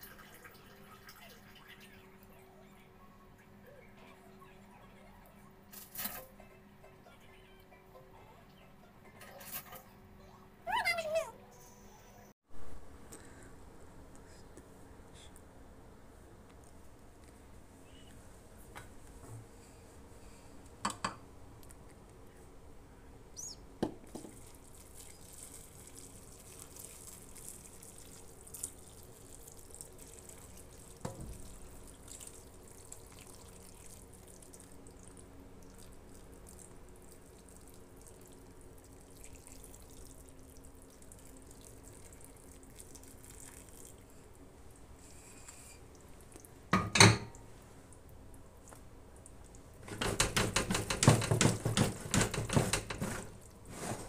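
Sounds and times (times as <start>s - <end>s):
liquid trickling and splashing: 0.0s - 2.1s, 24.2s - 44.9s.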